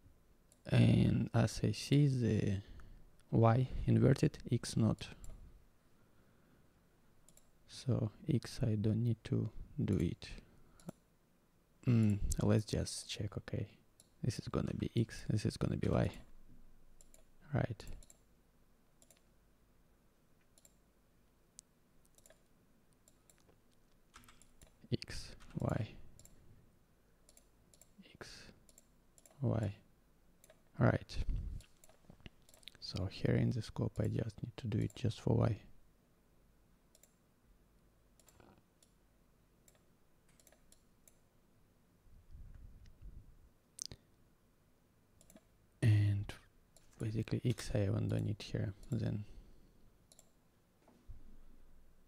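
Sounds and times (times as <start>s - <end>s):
computer mouse clicks: 7.3s - 7.5s, 10.8s - 11.0s, 17.0s - 17.3s, 17.9s - 18.2s, 19.0s - 19.3s, 20.4s - 20.8s, 22.0s - 24.8s, 25.4s - 26.4s, 27.3s - 28.0s, 28.6s - 29.4s, 31.6s - 32.8s, 36.9s - 37.2s, 38.2s - 39.0s, 39.6s - 41.2s, 45.2s - 45.5s, 50.1s - 50.4s.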